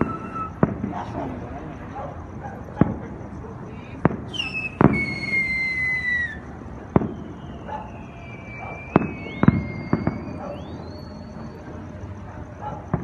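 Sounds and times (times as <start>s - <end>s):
long high whistle: 0.0s - 0.6s, 4.3s - 6.4s, 7.0s - 11.6s
fireworks bangs: 0.0s - 13.0s.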